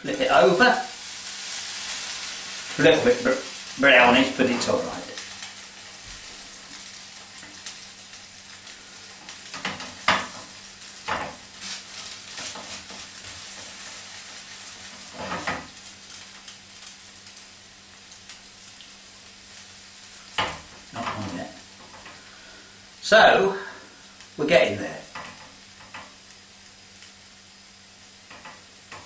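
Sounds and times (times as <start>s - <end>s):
pancake sizzling in a pan: 0.0s - 29.0s
spatula scraping and tapping pan: 9.2s - 14.2s, 14.9s - 16.4s, 25.1s - 26.2s, 28.3s - 29.0s.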